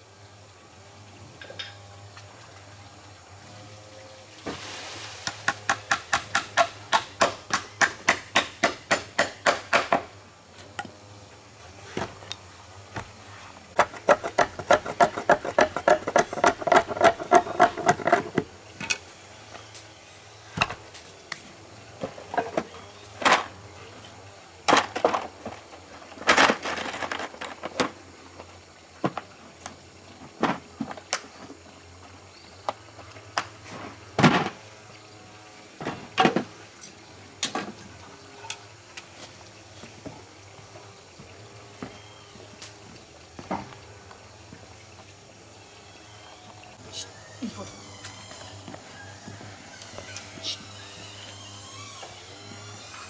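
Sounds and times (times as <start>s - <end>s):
machete chopping wooden board: 5.4s - 10.1s.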